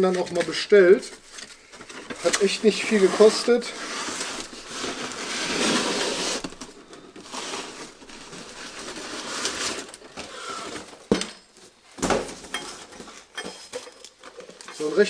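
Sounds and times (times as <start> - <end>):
cardboard rustling and tearing: 0.2 - 11.0.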